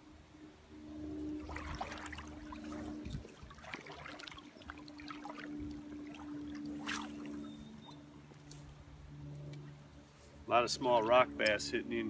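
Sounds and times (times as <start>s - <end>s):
steady low hum: 0.0s - 12.0s
water splashing from wading: 1.0s - 8.2s.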